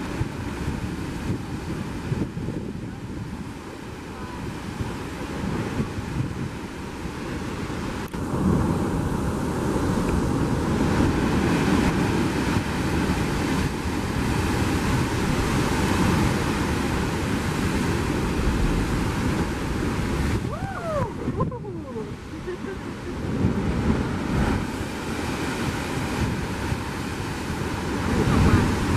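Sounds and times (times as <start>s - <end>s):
ocean surf churning on rocks: 0.0s - 28.9s
wind buffeting microphone: 0.0s - 28.9s.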